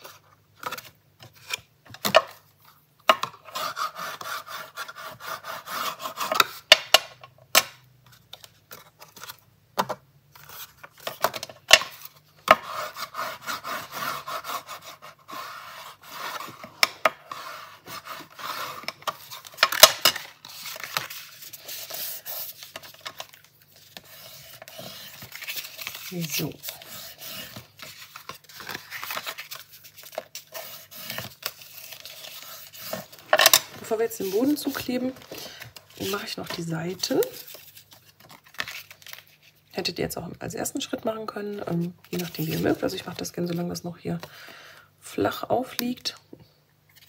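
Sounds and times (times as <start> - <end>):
cardstock scraping: 12.5 - 36.6.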